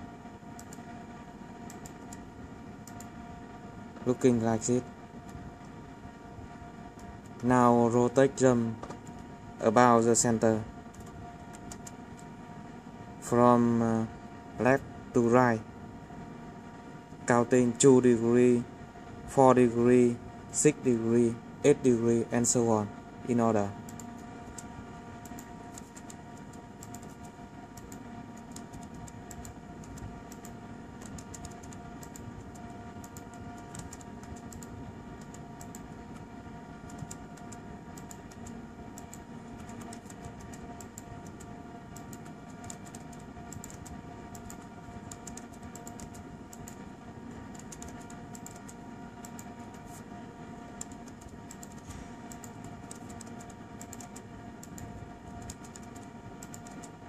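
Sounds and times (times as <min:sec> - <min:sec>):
steady tonal hum: 0:00.0 - 0:57.0
laptop keyboard typing: 0:10.9 - 0:12.3, 0:23.8 - 0:46.8, 0:47.5 - 0:50.0, 0:50.8 - 0:57.0.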